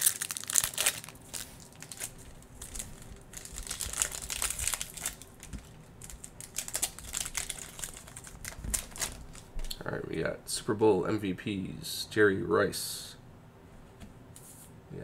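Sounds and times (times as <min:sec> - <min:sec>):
foil pack tearing open: 0:00.0 - 0:09.5
foil card pack crinkling: 0:00.0 - 0:09.8.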